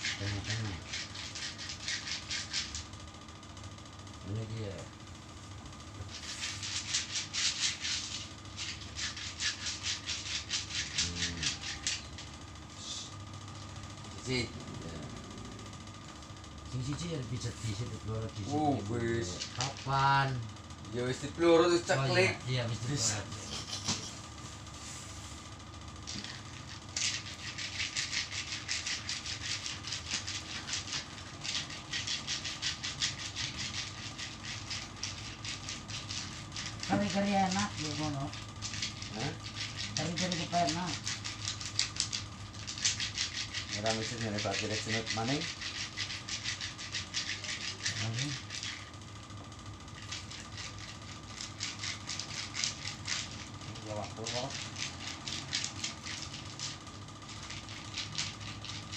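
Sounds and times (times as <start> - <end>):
steady low hum: 0.0 - 58.9
hands rubbing skin: 6.1 - 12.0.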